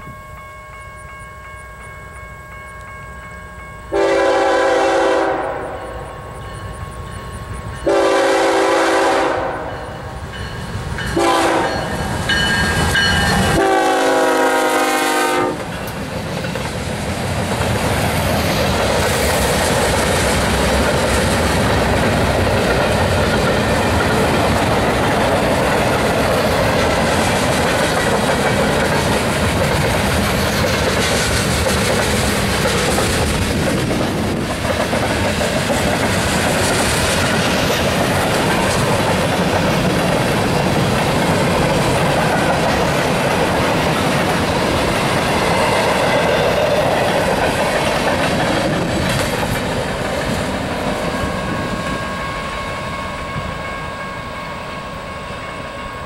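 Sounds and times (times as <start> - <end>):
freight train rumbling past: 0.0 - 56.0
locomotive air horn blasts: 3.9 - 6.0, 7.8 - 9.8, 11.2 - 11.9, 13.5 - 15.7
wheels clicking over rail joints: 15.6 - 52.0.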